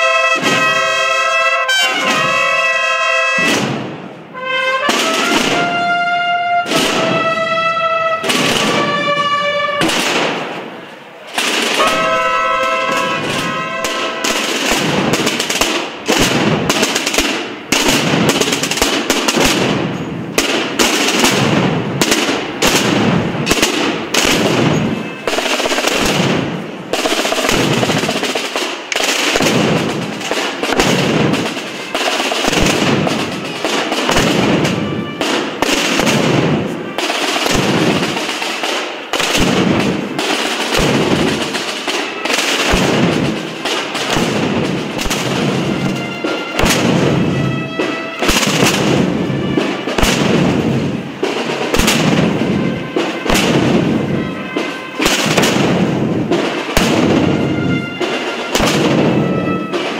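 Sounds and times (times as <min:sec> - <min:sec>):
snare drums rolling: 0:00.0 - 0:59.9
bass drums pounding: 0:42.7 - 0:54.2.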